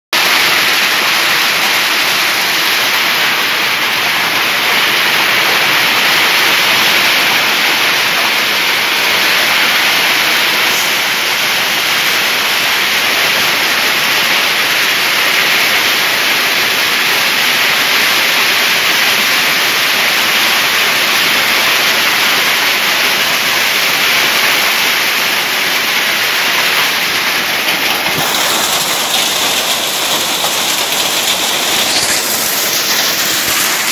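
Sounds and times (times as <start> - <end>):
hail and rain on wet ground: 0.2 - 33.9.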